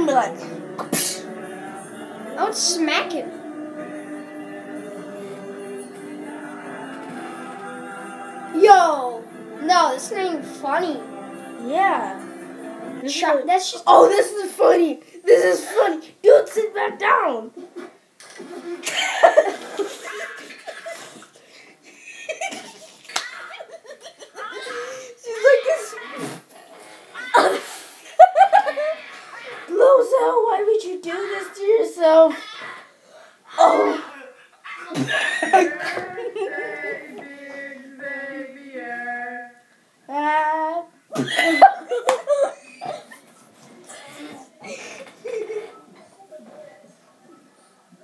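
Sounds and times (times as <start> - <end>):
children singing: 0.0 - 13.1, 33.6 - 39.6
boys laughing: 17.6 - 25.9, 27.3 - 29.8, 33.5 - 37.2, 41.1 - 43.5, 44.6 - 45.9
child shrieking: 33.5 - 34.8.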